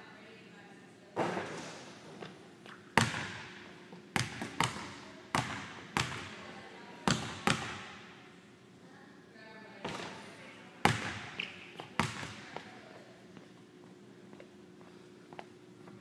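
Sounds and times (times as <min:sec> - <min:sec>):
basketball bouncing on hardwood floor: 0:03.0 - 0:03.6, 0:04.2 - 0:06.4, 0:07.1 - 0:08.0, 0:10.9 - 0:12.7.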